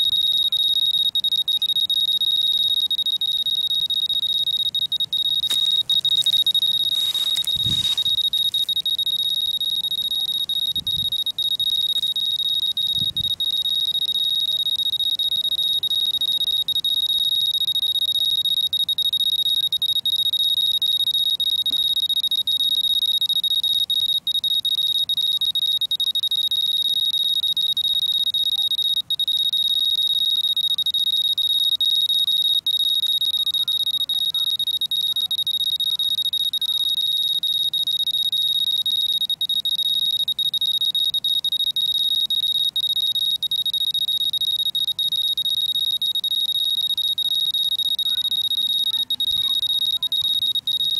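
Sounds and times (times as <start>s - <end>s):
dosimeter alarm tone: 0.0s - 50.9s.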